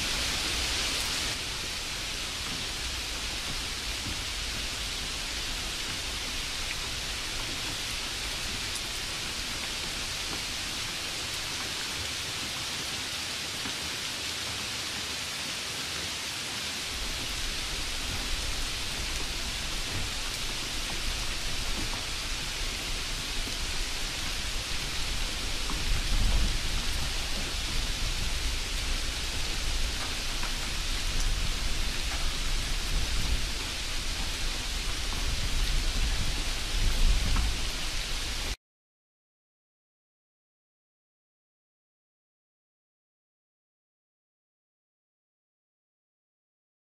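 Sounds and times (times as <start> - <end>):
steady rain hiss: 0.0 - 38.6.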